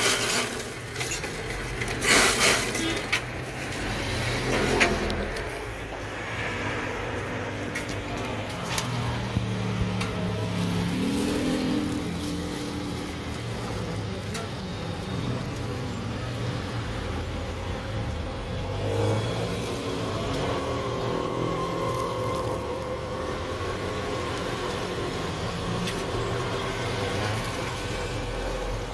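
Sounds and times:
vehicle engines humming: 0.0s - 28.9s
engine revving: 8.6s - 13.8s, 18.5s - 28.9s.

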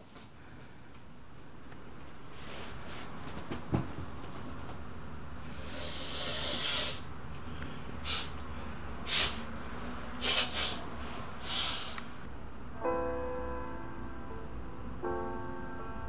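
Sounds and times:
man snorting through nose: 5.5s - 7.1s, 8.0s - 8.4s, 9.0s - 9.5s, 10.2s - 12.1s
short sharp sniffs: 5.6s - 7.0s, 8.0s - 8.4s, 9.0s - 9.4s, 10.2s - 12.1s.

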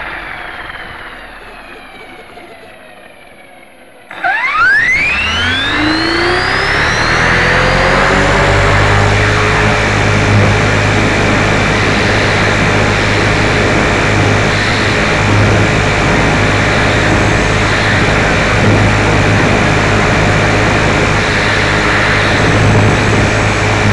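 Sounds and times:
road and motor noise: 0.0s - 23.9s
toy car motor whine: 4.1s - 9.7s.

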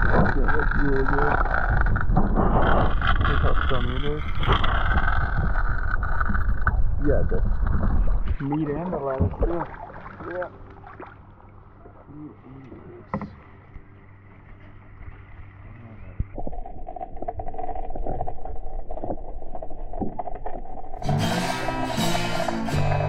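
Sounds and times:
muffled underwater river sound: 0.0s - 21.0s
music: 21.0s - 23.0s.

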